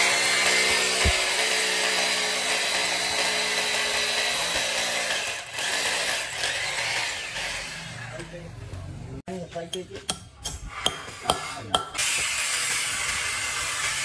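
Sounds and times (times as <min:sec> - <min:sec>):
power tool running: 0:00.0 - 0:08.2.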